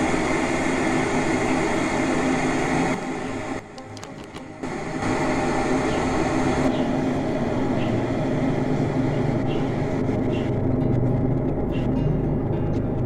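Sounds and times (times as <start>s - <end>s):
electric kettle rumbling: 0.0s - 13.0s.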